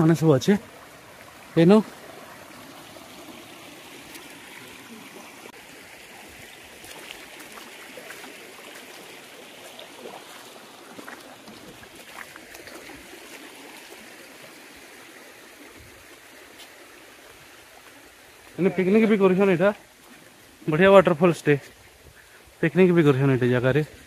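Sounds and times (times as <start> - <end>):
stream babbling over stones: 0.0 - 24.0
small faint splashes: 0.8 - 14.6.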